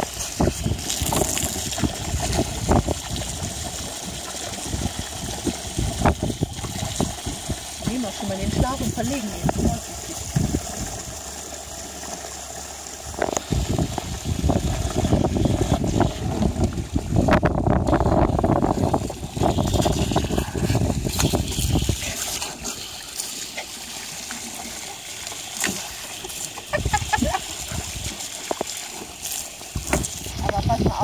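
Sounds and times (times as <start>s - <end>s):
water jetting from hose: 0.0s - 31.0s
water splashing: 0.0s - 31.0s.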